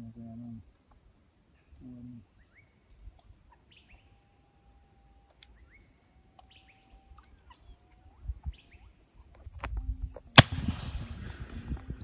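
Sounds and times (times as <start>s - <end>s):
small birds chirping: 0.0s - 10.1s
air rifle shot: 10.4s - 11.6s.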